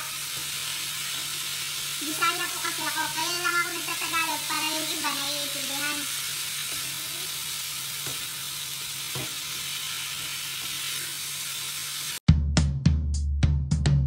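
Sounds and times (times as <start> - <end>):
vegetables sizzling in hot oil: 0.0 - 12.2
spatula scraping and knocking pan: 9.0 - 9.6.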